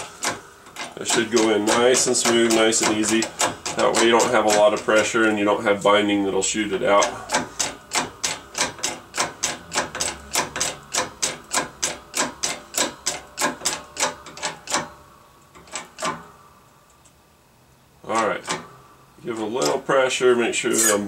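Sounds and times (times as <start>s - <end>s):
hydraulic jack pump clicking: 0.0s - 5.4s, 6.9s - 16.3s.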